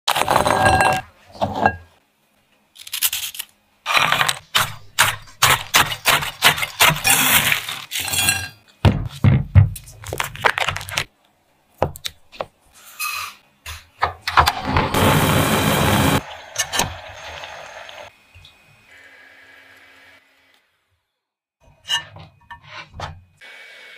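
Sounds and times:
foil wrapper crackling: 10.1s - 11.1s.

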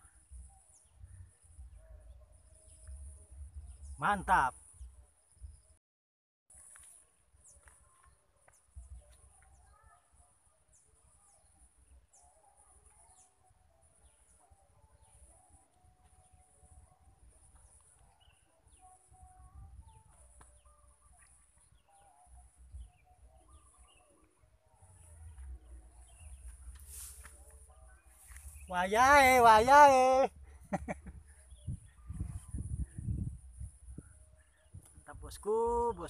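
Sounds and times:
birds chirping and calling: 19.9s - 36.0s
wind rumble on microphone: 31.0s - 35.3s.

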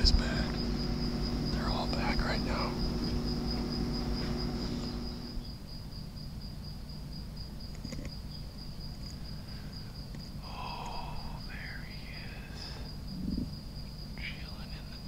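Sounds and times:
low background rumble: 0.0s - 5.6s, 9.2s - 14.7s
crickets chirping: 0.0s - 15.0s
faint ticks: 10.0s - 11.0s.

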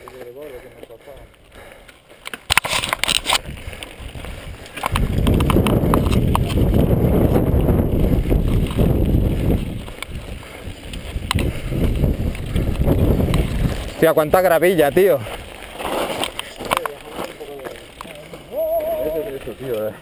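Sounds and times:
bike rattling on gravel trail: 0.0s - 20.0s
stones clicking and knocking: 2.2s - 3.9s, 4.6s - 6.8s
wind buffeting microphone: 3.2s - 15.6s.

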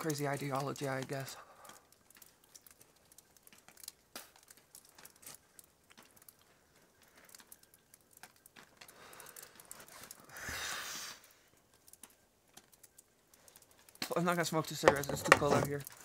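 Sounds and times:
snowflakes ticking: 0.0s - 16.0s
long breathy exhale: 10.3s - 11.2s.

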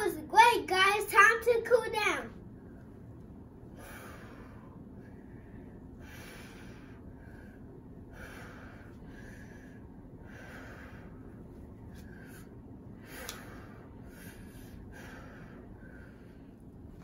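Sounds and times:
boy breathing deeply: 3.6s - 17.0s.

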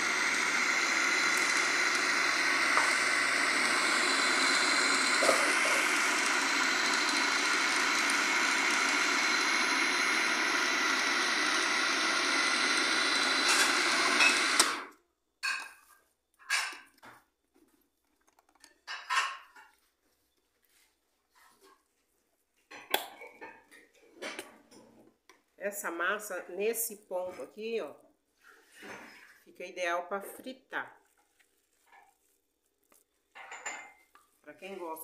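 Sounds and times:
food processor motor grinding: 0.0s - 15.0s.

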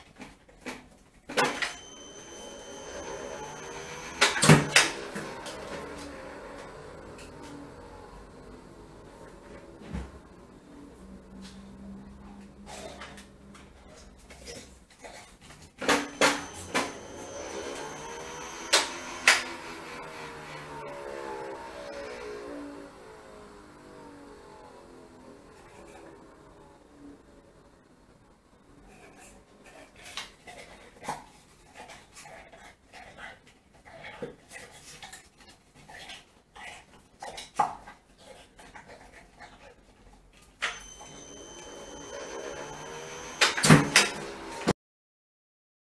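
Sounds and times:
thin steady whine: 1.4s - 14.7s, 15.8s - 29.3s, 40.6s - 44.7s
dog panting: 28.9s - 37.0s.

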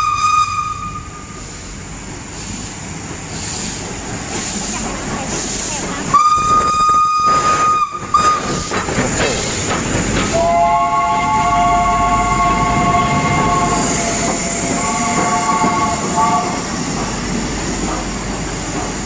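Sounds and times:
steam locomotive whistle: 0.0s - 1.4s, 6.1s - 8.7s, 10.3s - 16.8s
locomotive running past: 2.7s - 19.0s.

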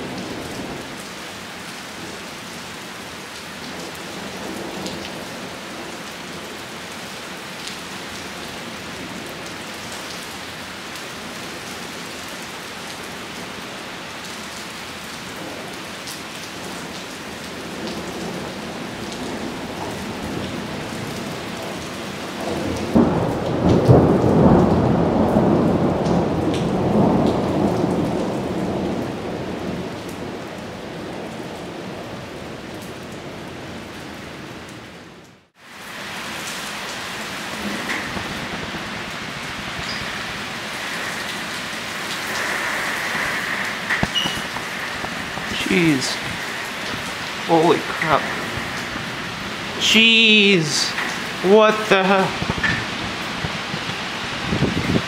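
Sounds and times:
steady rain: 0.0s - 55.0s
rolling thunder: 22.4s - 29.9s, 37.6s - 40.5s, 42.8s - 45.6s, 48.2s - 49.8s, 52.3s - 55.0s.

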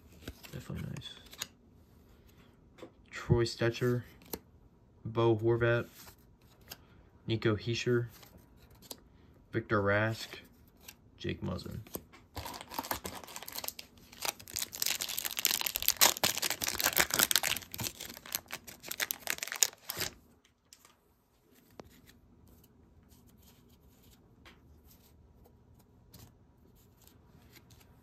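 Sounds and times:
wrapper tearing and crinkling: 12.4s - 20.2s.

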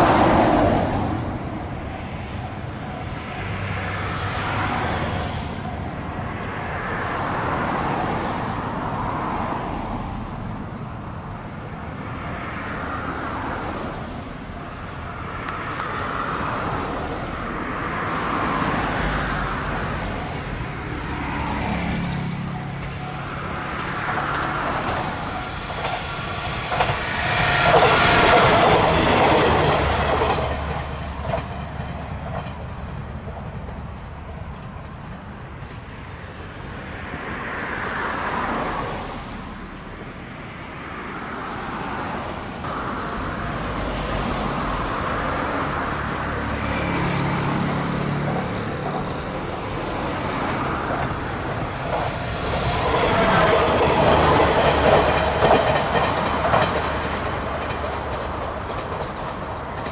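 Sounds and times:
diesel railcar engine passing: 0.0s - 59.9s
wheels clattering over rail joints: 19.2s - 39.0s, 45.5s - 59.9s.

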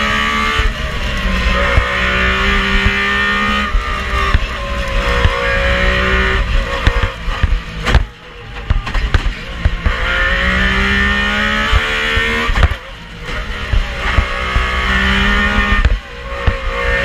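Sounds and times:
rally engine at high revs: 0.0s - 17.0s
exhaust pops and cracks: 6.8s - 10.0s, 11.7s - 14.7s, 15.6s - 16.7s.

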